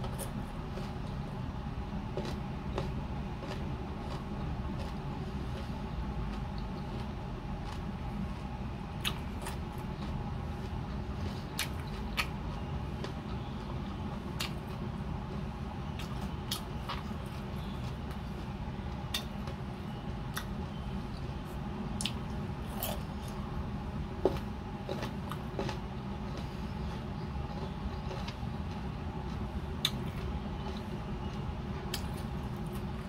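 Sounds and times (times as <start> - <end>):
steady low hum: 0.0 - 33.0
wet chewing and lip smacks: 6.3 - 13.5, 14.4 - 14.8, 16.0 - 18.4, 19.1 - 19.6, 22.0 - 23.4, 27.5 - 33.0.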